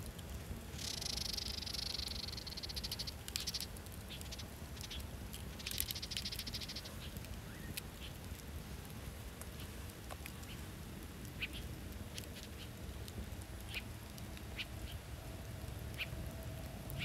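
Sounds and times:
campfire crackling and popping: 0:00.0 - 0:17.0
fire low rumble: 0:00.0 - 0:17.0
fluttering pulsing hiss: 0:00.3 - 0:07.6.

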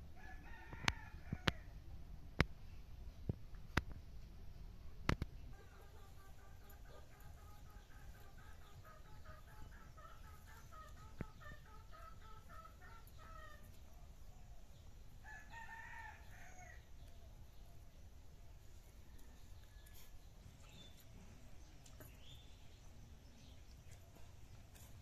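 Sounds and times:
rooster crowing: 0:00.2 - 0:01.7
chickens clucking: 0:05.2 - 0:13.8.

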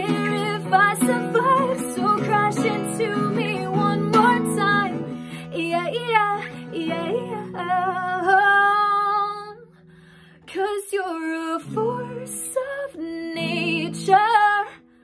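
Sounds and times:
strummed acoustic guitar: 0:00.0 - 0:09.2
woman singing with vibrato: 0:00.0 - 0:09.8, 0:10.5 - 0:14.9.

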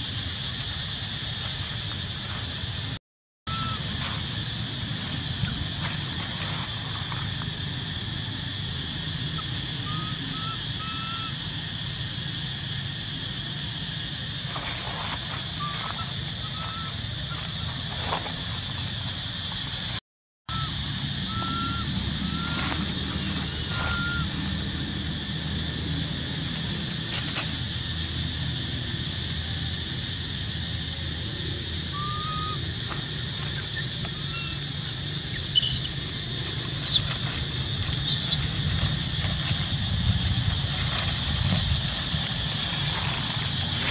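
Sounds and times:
insect drone: 0:00.0 - 0:43.9
rising chirp calls: 0:03.5 - 0:04.0, 0:09.3 - 0:11.4, 0:15.4 - 0:17.9, 0:20.5 - 0:24.6, 0:31.8 - 0:32.7, 0:33.4 - 0:36.0, 0:37.9 - 0:38.6
sharp high squeaks and crackles: 0:33.3 - 0:43.9.

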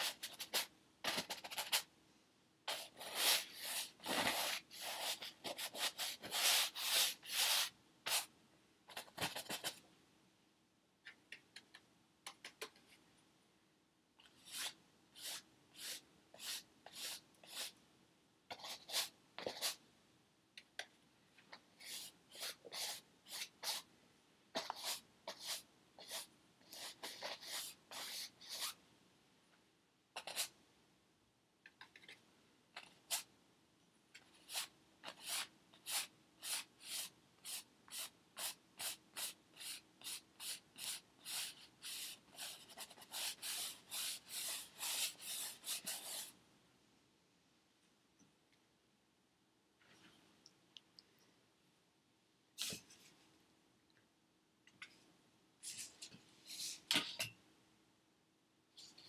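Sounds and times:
paintbrush strokes on canvas: 0:02.7 - 0:08.3.

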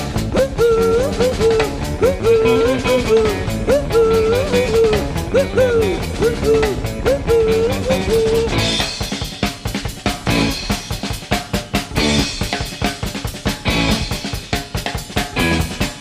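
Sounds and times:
bending lead melody: 0:00.0 - 0:10.8
steady drum beat: 0:00.0 - 0:16.0.

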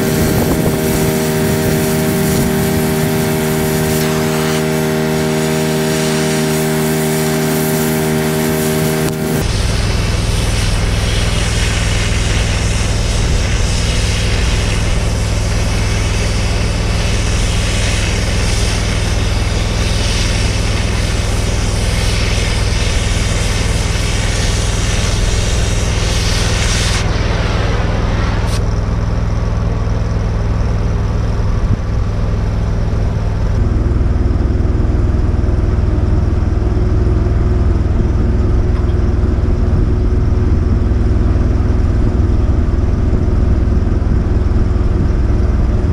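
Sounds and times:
torch hissing: 0:00.0 - 0:28.7
engine running: 0:00.0 - 0:45.9.

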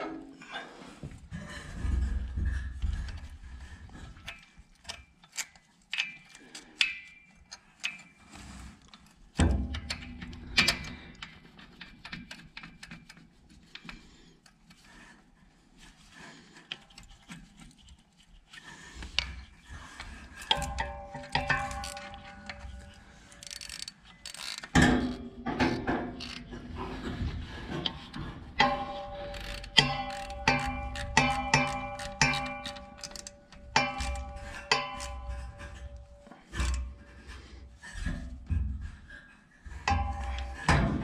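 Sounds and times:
struck metal ringing: 0:28.6 - 0:36.8
metal tools clinking: 0:28.6 - 0:36.9.

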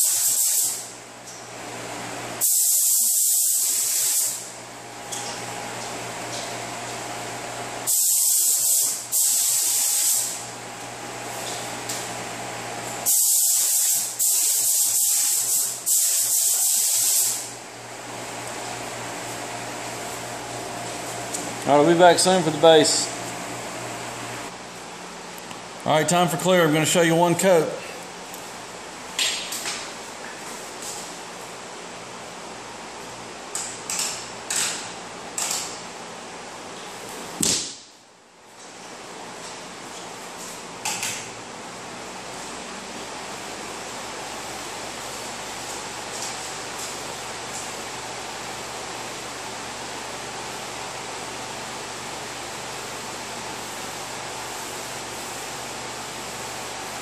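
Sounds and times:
paint spray gun hissing: 0:00.0 - 0:00.9, 0:02.4 - 0:04.5, 0:07.9 - 0:10.4, 0:13.0 - 0:17.5.

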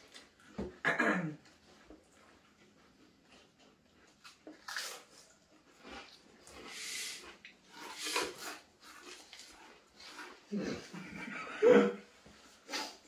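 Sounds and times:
people chewing crisps: 0:01.4 - 0:13.0.

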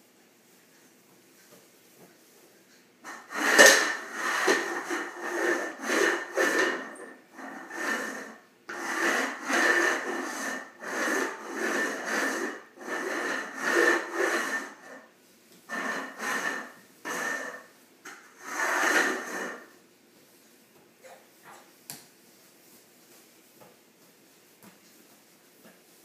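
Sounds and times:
plastic bowl scraping on tile: 0:03.1 - 0:15.1, 0:15.7 - 0:19.8.

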